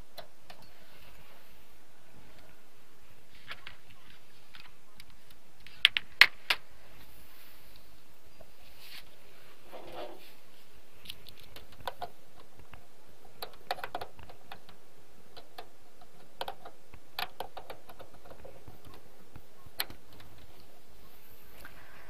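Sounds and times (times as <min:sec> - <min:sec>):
keyboard typing: 0:11.1 - 0:20.7.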